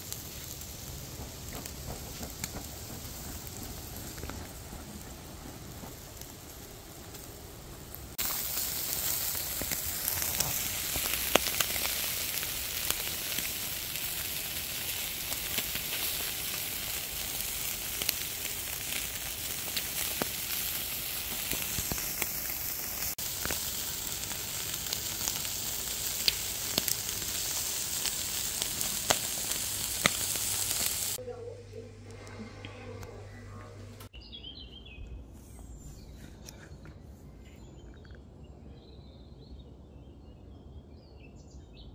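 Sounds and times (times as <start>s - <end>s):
chicken sizzling over charcoal: 0.0s - 31.2s.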